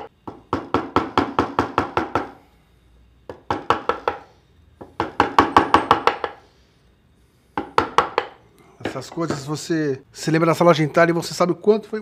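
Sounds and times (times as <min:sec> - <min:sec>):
mallet tapping wood chisel: 0:03.3 - 0:06.4, 0:07.6 - 0:09.4.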